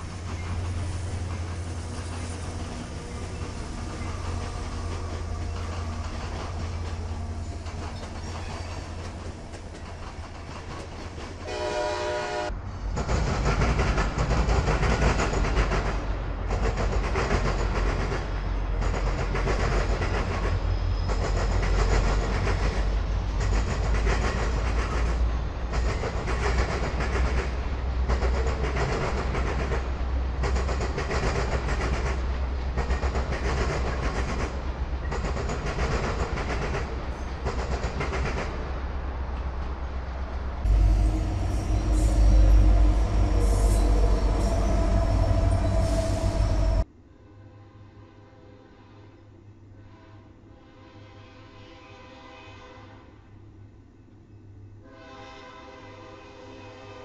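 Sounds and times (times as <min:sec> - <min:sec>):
diesel locomotives rumbling: 0:00.0 - 0:46.9
train wheels clickety-clack: 0:00.0 - 0:46.9
train horn blast: 0:11.4 - 0:12.6, 0:40.7 - 0:53.3, 0:54.8 - 0:57.0.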